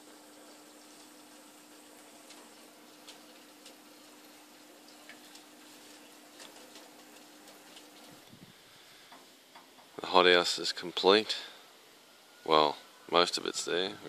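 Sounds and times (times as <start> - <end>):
soft background hiss: 0.0 - 14.0.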